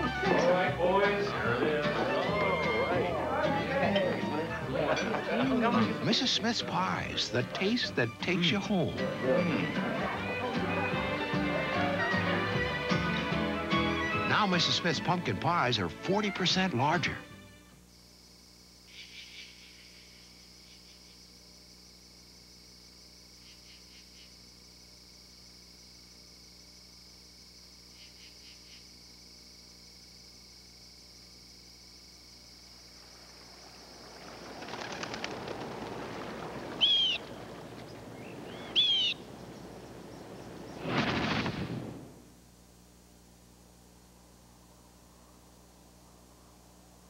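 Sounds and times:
insects droning: 0.0 - 12.3, 13.0 - 47.0
insect chirps: 17.8 - 47.0
sharp bird calls: 18.9 - 21.0, 36.6 - 40.8.

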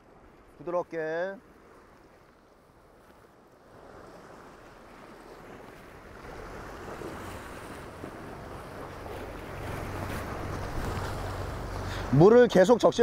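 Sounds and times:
wind rumbling on microphone: 1.4 - 12.2
waves washing against rocks: 3.7 - 13.0.

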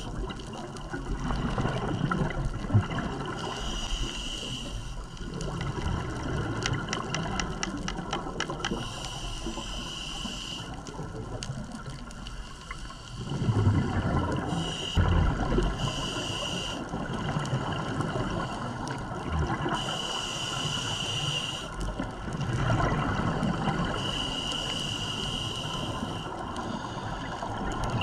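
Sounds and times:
exhaled bubbles underwater: 0.0 - 4.6, 5.2 - 9.9, 13.2 - 24.8, 25.6 - 28.0
regulator breathing hiss: 3.4 - 5.1, 8.7 - 10.8, 12.3 - 13.4, 14.5 - 15.0, 15.8 - 16.9, 19.7 - 21.8, 23.9 - 27.5.

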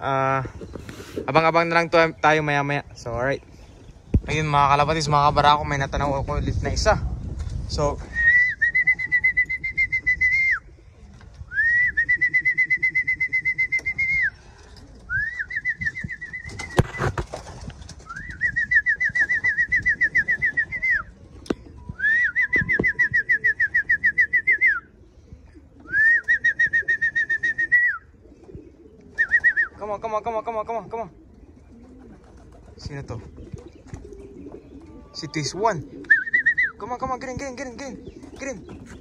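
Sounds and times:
trilled whistle calls: 8.2 - 10.7, 11.5 - 14.4, 25.9 - 28.1, 35.1 - 37.0.

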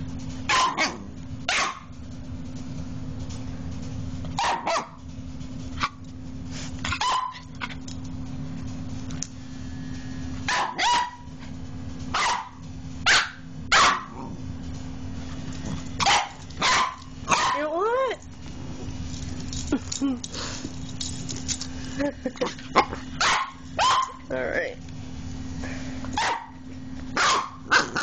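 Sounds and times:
puppy barking: 0.5 - 1.9, 4.4 - 5.0, 6.9 - 7.8, 10.5 - 11.3, 12.1 - 14.3, 16.0 - 17.8, 22.8 - 24.3, 26.2 - 28.0.

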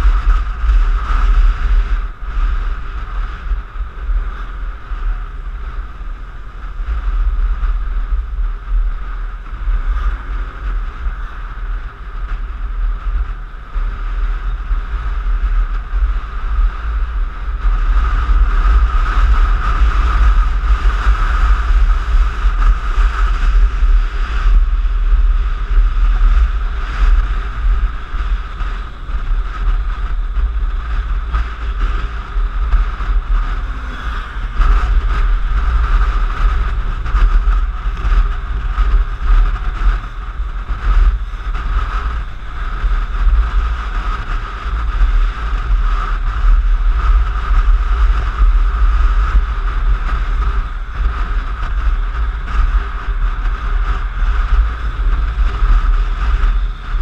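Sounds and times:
wind rumble on microphone: 0.0 - 57.0
scooter engine: 26.7 - 40.2.

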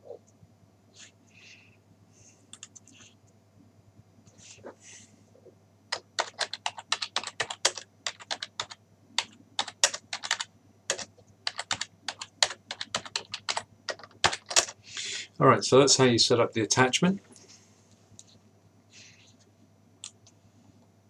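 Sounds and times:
computer keyboard typing: 2.5 - 3.0, 5.9 - 14.8.

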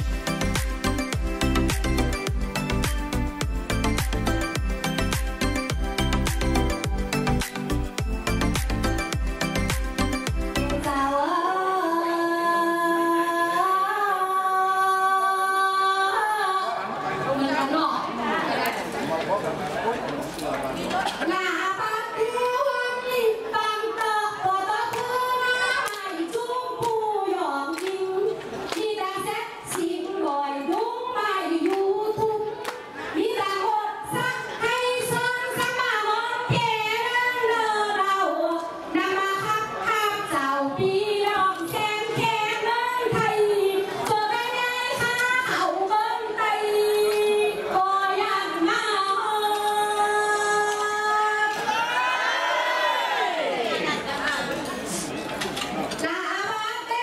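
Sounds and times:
woman singing into a microphone: 10.6 - 16.9, 21.3 - 51.6
hand claps: 27.7 - 28.0.

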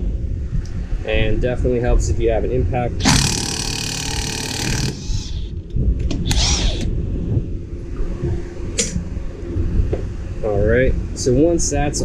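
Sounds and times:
impact wrench hammering: 3.0 - 5.2.

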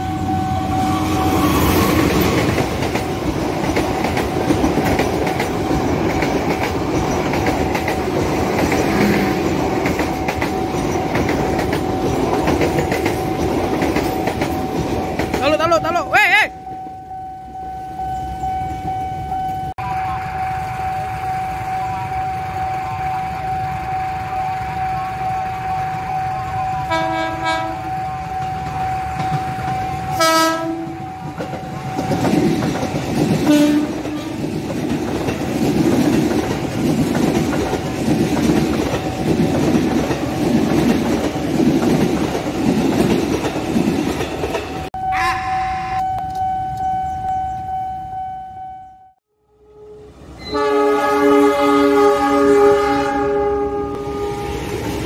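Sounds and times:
train wheels clickety-clack: 1.6 - 16.0, 26.8 - 44.9
steady high tone: 15.7 - 26.9, 45.0 - 50.5
train horn blasts: 25.0 - 28.7, 30.0 - 31.1, 33.4 - 34.4, 45.0 - 46.2, 49.4 - 54.6.

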